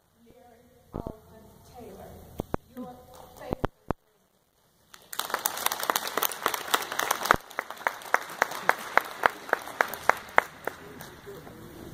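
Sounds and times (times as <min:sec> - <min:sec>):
person clapping close by: 0:04.9 - 0:11.1
audience applauding: 0:04.9 - 0:11.9.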